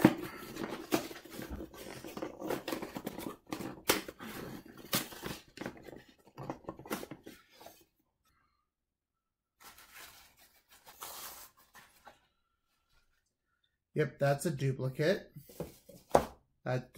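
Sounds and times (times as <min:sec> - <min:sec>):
cardboard box rustling and crackling: 0:00.0 - 0:07.3.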